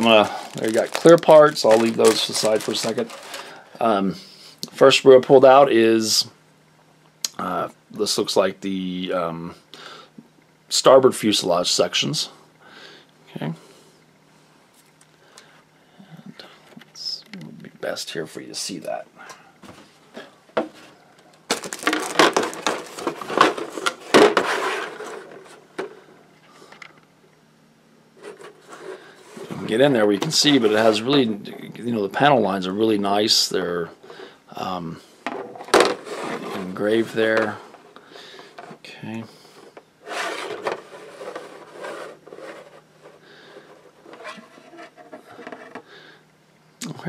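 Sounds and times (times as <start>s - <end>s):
plastic rubbing and scraping: 0.0s - 3.6s, 20.6s - 26.1s, 28.2s - 31.0s, 35.3s - 37.9s, 39.6s - 45.9s
plastic sprue rustling and clicking: 0.0s - 3.6s.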